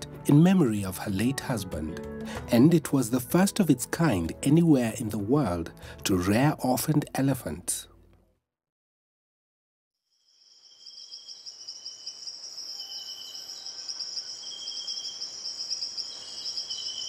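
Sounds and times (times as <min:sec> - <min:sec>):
crickets trilling: 0:10.2 - 0:17.0.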